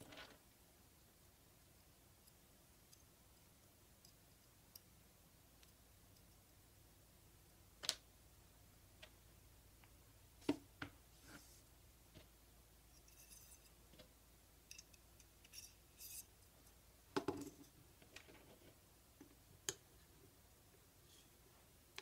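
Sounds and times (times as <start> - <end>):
high metallic scraping: 12.9 - 13.8, 14.7 - 16.3.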